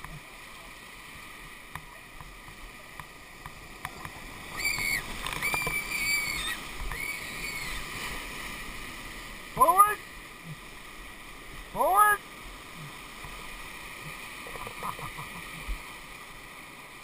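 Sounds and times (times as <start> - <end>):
whitewater rushing: 0.0 - 17.0.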